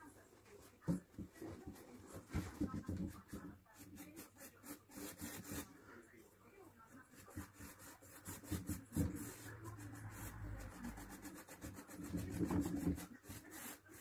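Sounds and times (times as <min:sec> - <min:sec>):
paintbrush scrubbing on wood: 0:03.1 - 0:05.8, 0:07.2 - 0:14.0.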